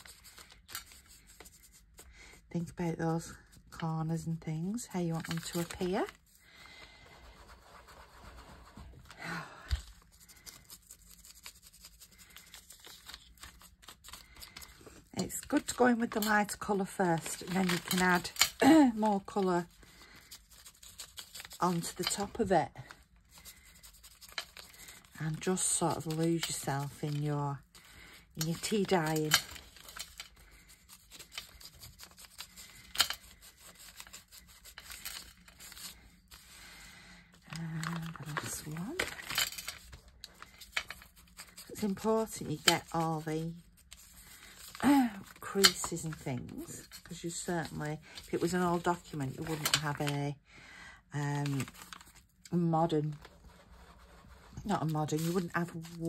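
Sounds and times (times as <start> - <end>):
paper handling: 0.0 - 2.0, 5.1 - 36.8, 37.5 - 50.1, 51.4 - 56.0
sponge rubbing paper: 0.0 - 2.0, 7.0 - 9.0, 9.8 - 14.1, 18.7 - 27.9, 28.5 - 36.7, 53.2 - 56.0.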